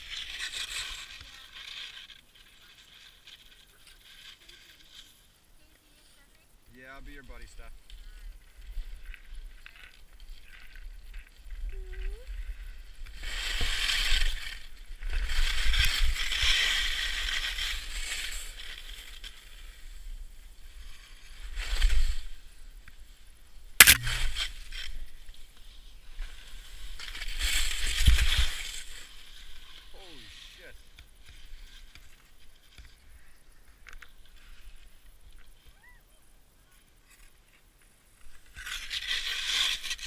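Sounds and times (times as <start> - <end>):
skis scraping icy snow: 0.0 - 6.3, 6.9 - 35.7, 37.0 - 40.0
sharp clack: 23.8 - 24.5.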